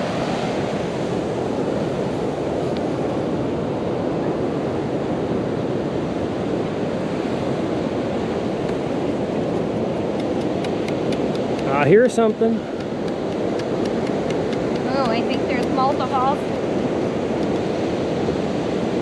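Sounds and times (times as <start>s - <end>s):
ocean surf: 0.0s - 19.0s
wind on microphone: 0.0s - 19.0s.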